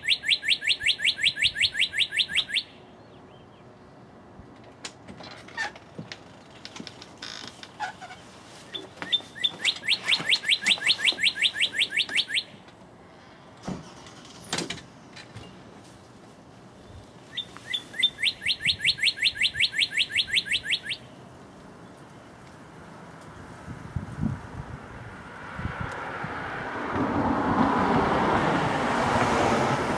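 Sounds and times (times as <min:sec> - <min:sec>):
bird singing whistles and trill: 0:08.7 - 0:12.5, 0:17.3 - 0:21.0.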